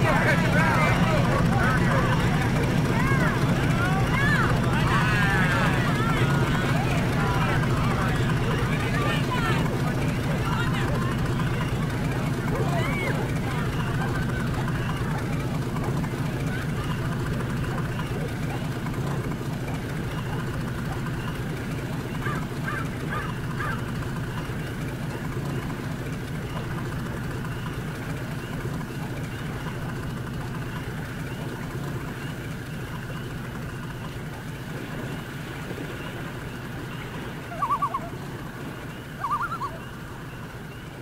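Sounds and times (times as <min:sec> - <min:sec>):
low motor drone: 0:00.0 - 0:41.0
short bird calls: 0:37.4 - 0:38.2, 0:39.0 - 0:40.0.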